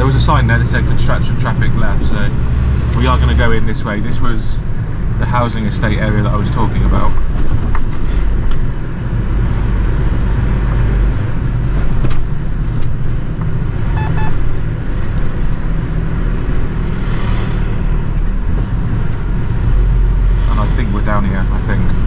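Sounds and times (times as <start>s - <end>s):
lorry diesel engine running: 0.0s - 22.0s
road and cab noise: 0.0s - 22.0s
quick electronic beeps: 13.9s - 14.4s.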